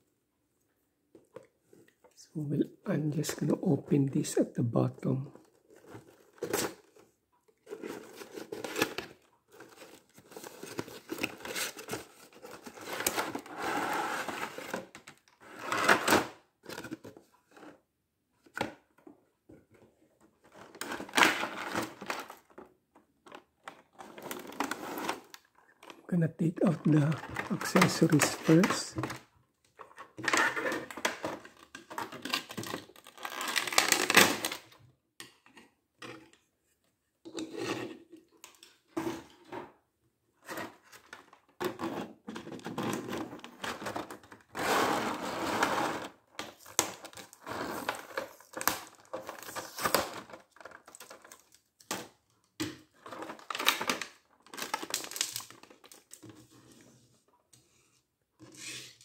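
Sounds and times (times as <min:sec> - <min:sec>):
plastic packaging crinkling: 0:23.9 - 0:29.2, 0:30.3 - 0:34.7, 0:53.0 - 0:56.3.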